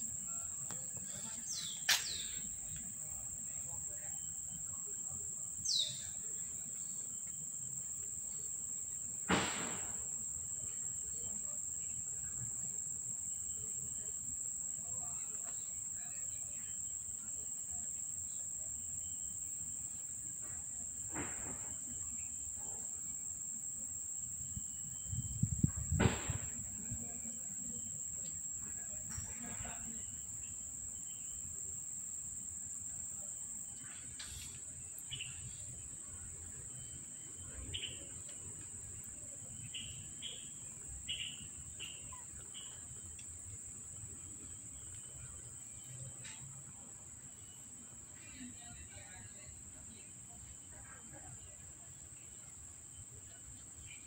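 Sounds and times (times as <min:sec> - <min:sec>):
insects buzzing: 0:00.0 - 0:54.0
rustling thump: 0:09.3 - 0:10.0, 0:25.6 - 0:27.0.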